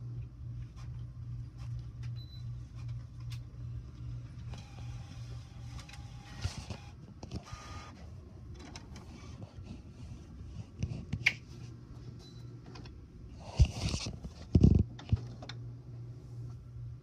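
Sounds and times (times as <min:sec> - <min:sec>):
printer humming: 0:00.0 - 0:10.3
printer whir: 0:04.0 - 0:09.6.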